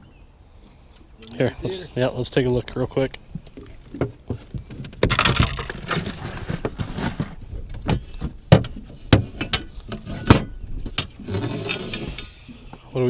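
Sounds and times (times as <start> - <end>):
fishing gear rattling: 3.4 - 12.7.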